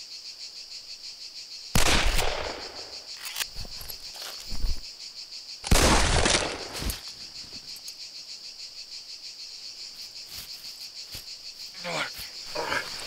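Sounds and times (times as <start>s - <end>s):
crickets chirring: 0.0s - 13.0s
gunshot with echo: 1.8s - 2.8s.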